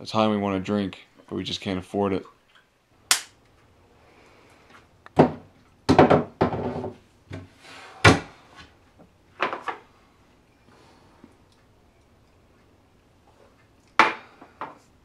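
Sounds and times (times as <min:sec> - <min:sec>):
wooden knocks and thuds: 0:05.2 - 0:08.4.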